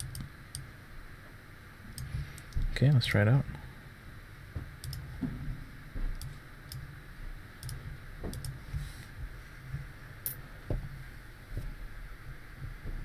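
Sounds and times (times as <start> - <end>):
faint low background hum: 0.0 - 13.0
computer mouse clicks: 4.8 - 5.1, 6.2 - 6.8, 7.6 - 8.6.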